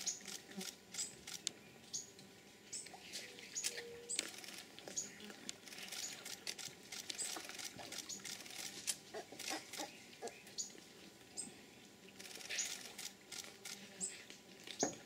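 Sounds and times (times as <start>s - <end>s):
otters chewing and crunching fish: 4.2s - 9.9s.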